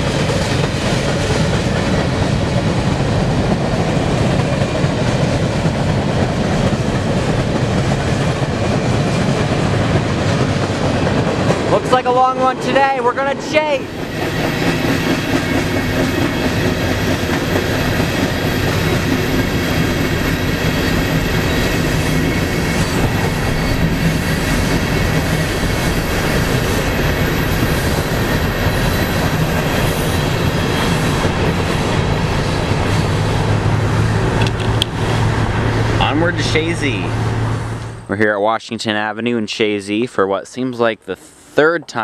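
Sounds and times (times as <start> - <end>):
train wheels rumbling on rails: 0.0 - 38.3
car road and wind noise: 14.0 - 38.1.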